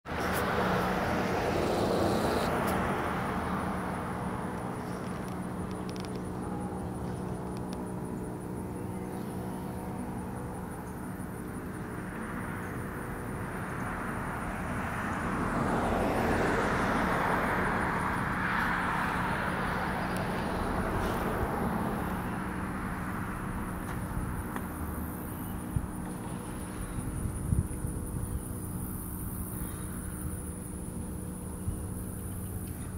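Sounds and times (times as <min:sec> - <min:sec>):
car passing: 0:00.1 - 0:05.6, 0:13.2 - 0:23.9
steady low hum: 0:00.1 - 0:32.9.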